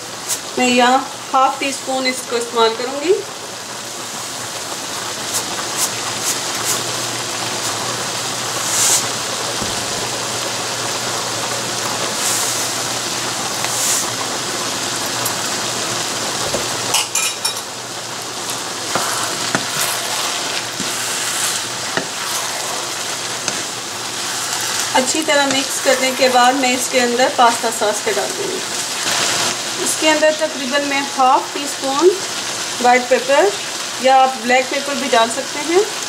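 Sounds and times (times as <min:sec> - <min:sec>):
food sizzling in a pan: 0:00.0 - 0:36.0
spatula scraping a pan: 0:18.9 - 0:28.4.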